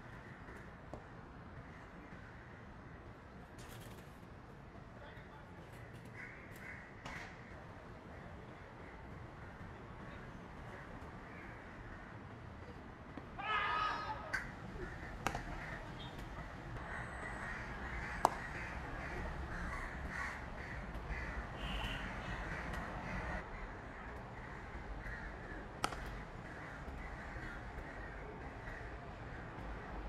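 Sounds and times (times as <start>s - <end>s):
crows cawing: 5.7s - 7.6s, 10.7s - 12.2s, 13.4s - 29.8s
cricket bat striking ball: 15.2s - 16.3s, 18.2s - 18.6s, 25.8s - 26.2s.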